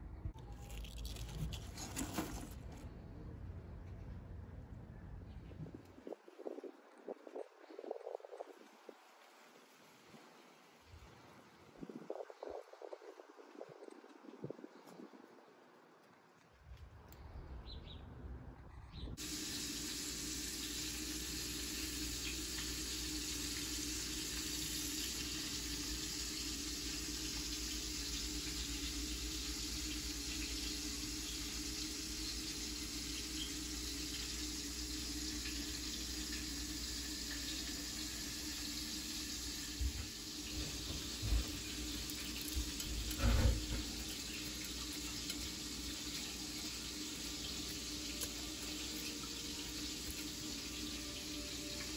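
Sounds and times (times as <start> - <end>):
tap water running into sink: 19.2 - 51.9.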